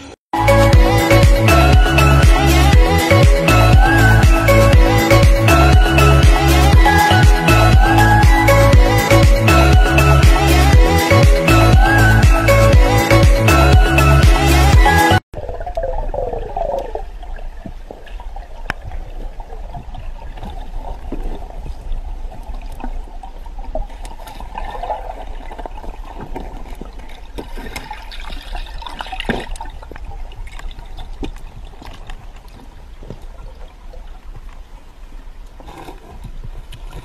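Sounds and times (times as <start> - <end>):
muffled underwater rumble: 15.4 - 23.8.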